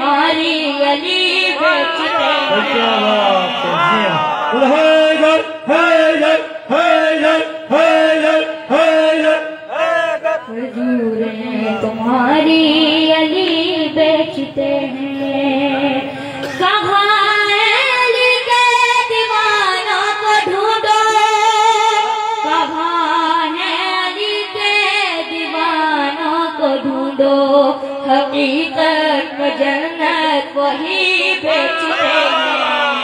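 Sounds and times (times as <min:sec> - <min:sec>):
boy singing into a microphone: 0:00.0 - 0:02.1, 0:10.5 - 0:33.0.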